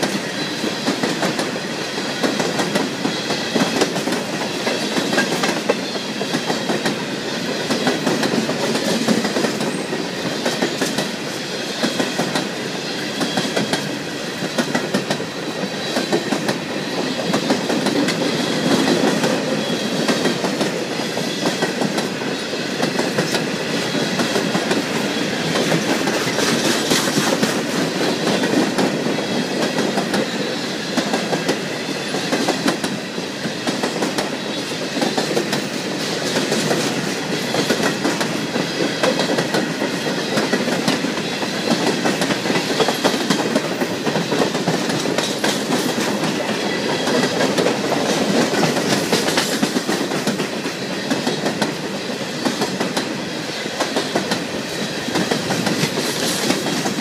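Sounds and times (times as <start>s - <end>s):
freight train wheels on rails: 0.0s - 57.0s
clattering clicks and clacks: 41.7s - 51.8s, 55.1s - 57.0s.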